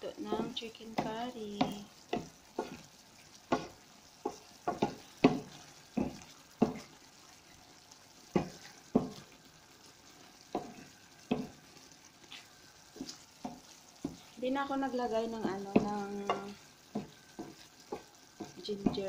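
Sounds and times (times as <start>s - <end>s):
spoon knocking against pan: 0.2s - 2.8s, 3.4s - 7.0s, 8.3s - 9.3s, 10.4s - 11.7s, 13.0s - 14.4s, 15.4s - 19.0s.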